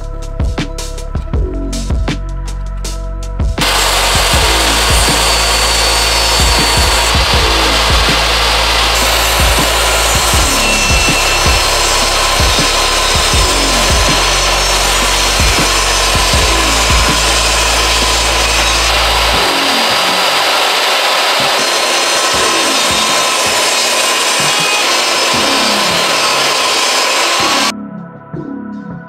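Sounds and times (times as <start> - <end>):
table saw ripping wood: 3.6 - 27.7.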